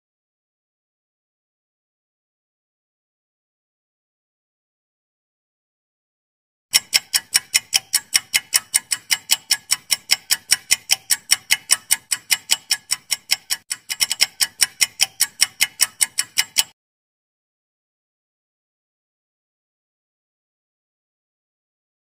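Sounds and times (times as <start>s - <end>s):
rapid clock ticks: 6.7s - 16.8s.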